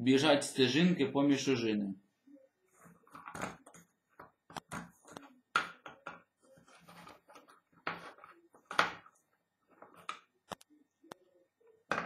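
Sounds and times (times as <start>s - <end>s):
objects being handled: 2.7s - 11.2s.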